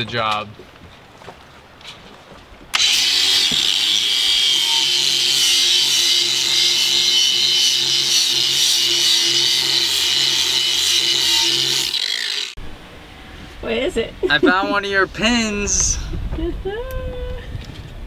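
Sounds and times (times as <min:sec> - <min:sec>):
power sander grinding metal: 0:02.8 - 0:12.6.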